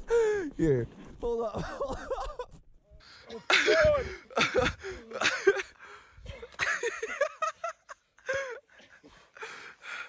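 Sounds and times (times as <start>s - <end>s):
man's strained cries and gasps: 3.1s - 6.4s.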